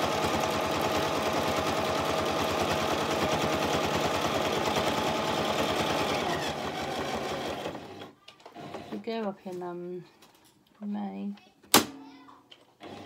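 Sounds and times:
sewing machine stitching: 0:00.0 - 0:09.0, 0:12.8 - 0:13.0.

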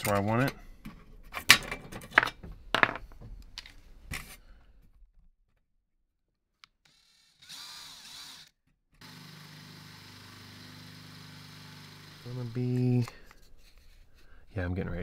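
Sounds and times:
cordless drill whining: 0:06.8 - 0:13.2.

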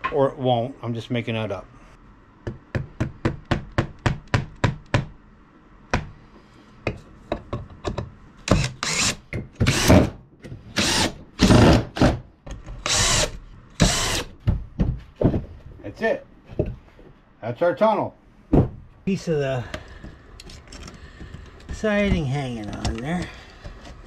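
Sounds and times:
power drill drilling into wood: 0:10.8 - 0:11.8, 0:12.9 - 0:14.3.

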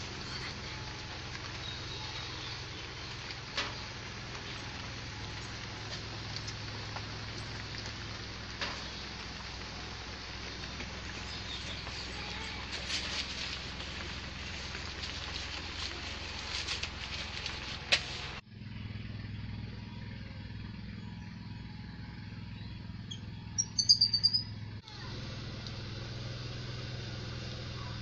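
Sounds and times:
firewood crackling and hissing: 0:00.0 - 0:18.4.

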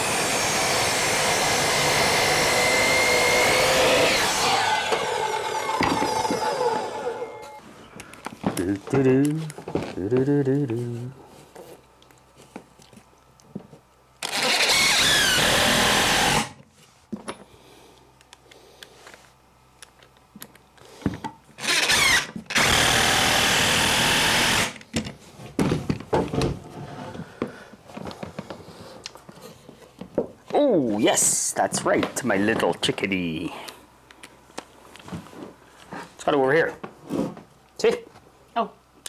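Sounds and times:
cordless drill whining: 0:00.0 - 0:07.6, 0:14.2 - 0:16.6, 0:21.6 - 0:24.8.

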